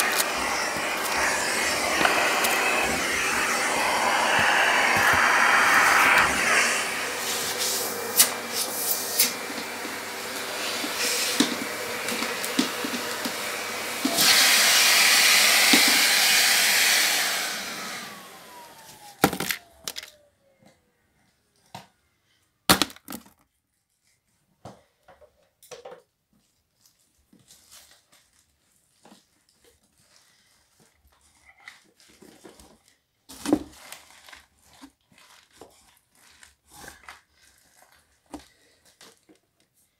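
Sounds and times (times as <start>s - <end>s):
vacuum cleaner running: 0.0s - 20.2s.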